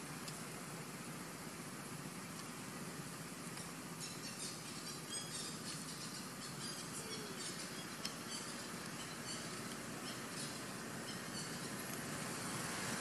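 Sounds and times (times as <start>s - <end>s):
steady background hiss: 0.0s - 13.0s
small animal chirping: 3.6s - 11.9s.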